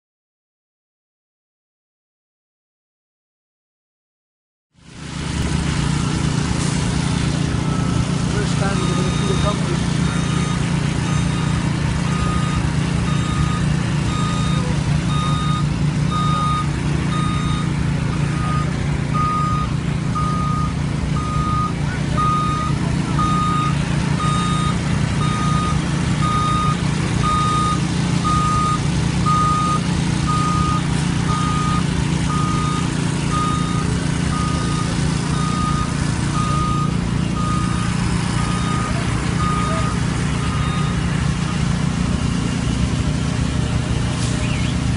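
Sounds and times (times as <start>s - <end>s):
truck engine running: 4.8s - 44.9s
reversing alarm beeping: 5.9s - 6.4s, 7.4s - 41.8s.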